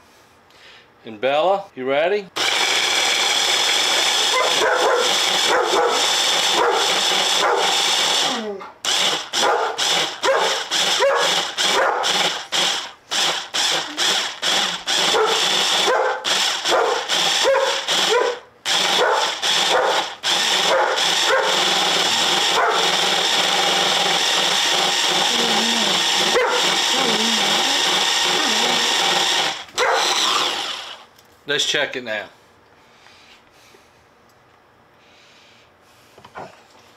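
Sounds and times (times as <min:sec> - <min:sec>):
immersion blender motor: 0:02.4 - 0:31.1
dog barking: 0:04.3 - 0:07.8, 0:09.4 - 0:12.1, 0:15.1 - 0:21.6, 0:22.5 - 0:22.9, 0:26.3 - 0:26.7, 0:29.8 - 0:30.1.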